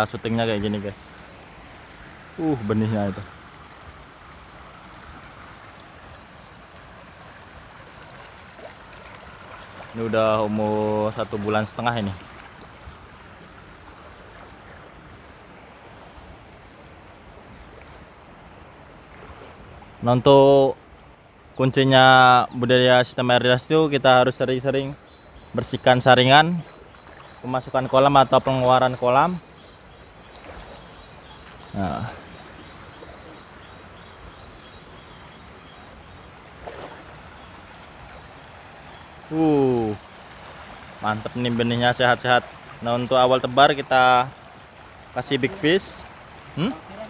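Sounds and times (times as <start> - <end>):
rushing flowing water: 0.0 - 47.0
faint bird chirps: 29.4 - 37.8.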